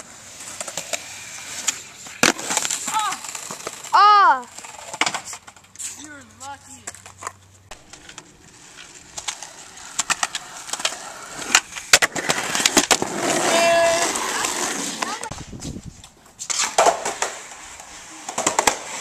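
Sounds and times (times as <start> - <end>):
skateboard wheels rolling on concrete: 0.0 - 19.0
person speaking: 5.8 - 7.0
skateboard clacking: 6.3 - 15.4.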